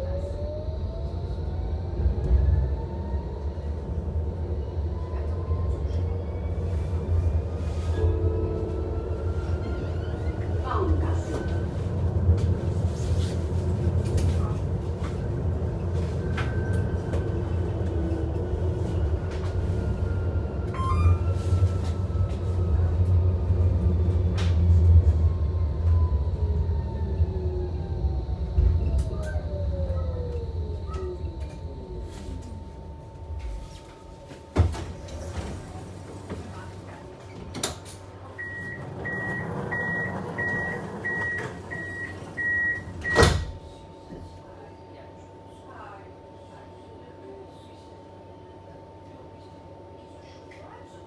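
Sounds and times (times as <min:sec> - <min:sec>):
tram rumble with electric whine: 0:00.0 - 0:51.0
door warning beeps: 0:38.4 - 0:43.6.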